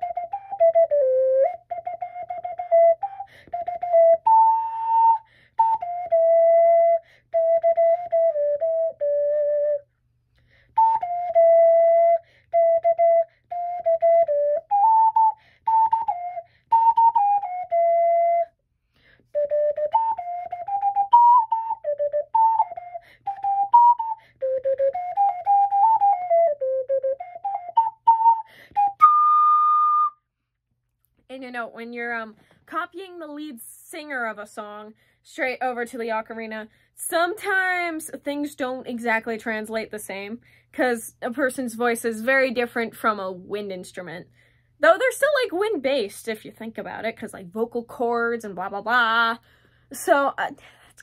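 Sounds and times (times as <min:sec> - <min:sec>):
ocarina melody: 0:00.0 - 0:10.0, 0:10.7 - 0:30.4.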